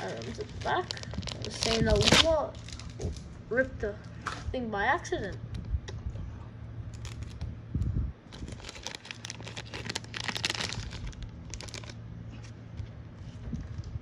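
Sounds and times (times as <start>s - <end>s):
plastic sleeve crinkling: 0.0s - 3.3s, 6.9s - 7.5s, 8.3s - 12.5s.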